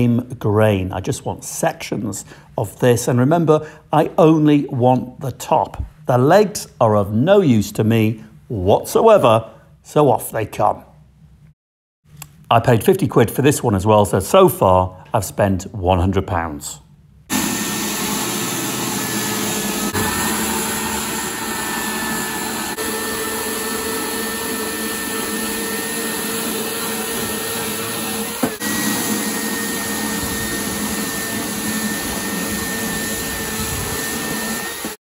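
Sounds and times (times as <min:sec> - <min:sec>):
electric chainsaw cutting wood: 0:17.3 - 0:35.0.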